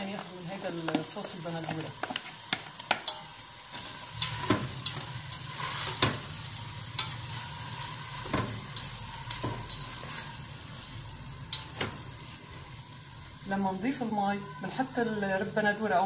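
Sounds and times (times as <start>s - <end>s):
steady sizzle: 0.0s - 16.0s
spoon scraping a metal pot: 3.0s - 12.9s.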